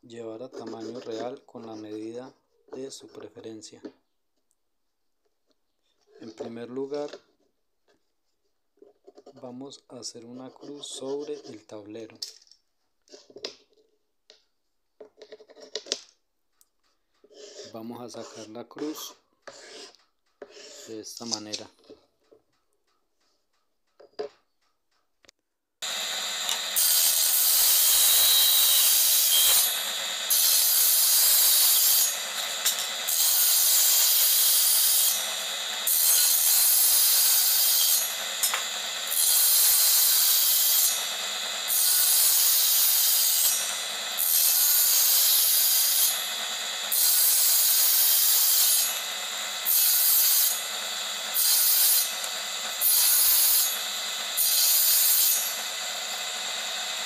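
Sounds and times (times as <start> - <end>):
saw cutting wood: 0.3 - 2.1, 10.5 - 11.7, 17.2 - 21.7, 25.8 - 57.0.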